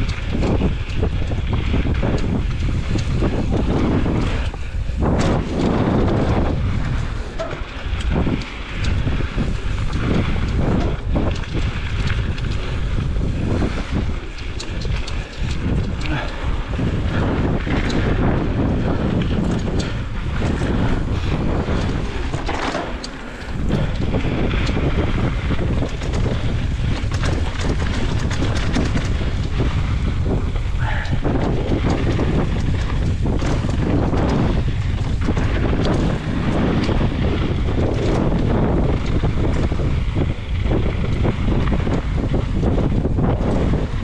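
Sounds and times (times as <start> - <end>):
bike rattling and clicking: 0.0 - 44.0
tyres rolling over dirt: 0.0 - 44.0
wind rushing over microphone: 0.0 - 44.0.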